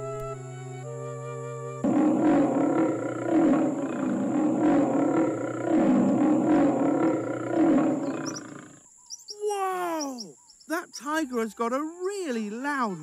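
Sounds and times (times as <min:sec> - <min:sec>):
tiger roaring: 0:01.8 - 0:08.8.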